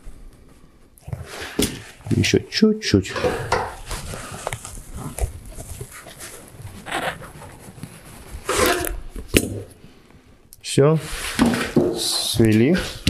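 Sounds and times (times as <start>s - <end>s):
sheet metal creaking and scraping: 8.4s - 9.2s.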